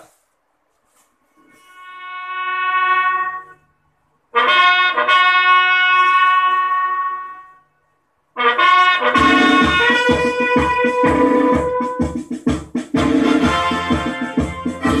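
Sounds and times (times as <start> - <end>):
brass horn long notes: 1.5 - 3.7, 4.3 - 7.6, 8.4 - 12.3, 13.0 - 15.0.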